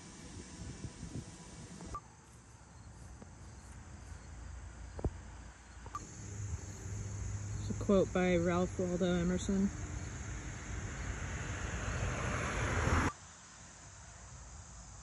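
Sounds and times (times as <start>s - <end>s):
wind rumbling on microphone: 0.0s - 2.0s
insects chirring: 0.0s - 15.0s.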